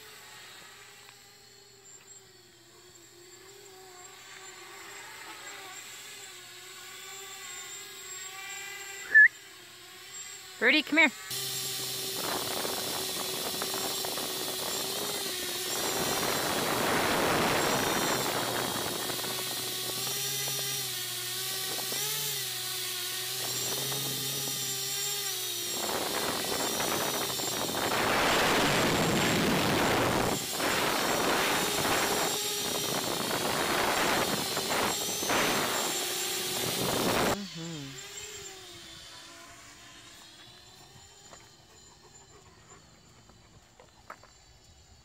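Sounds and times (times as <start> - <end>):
drone propellers whining: 0.0 - 44.4.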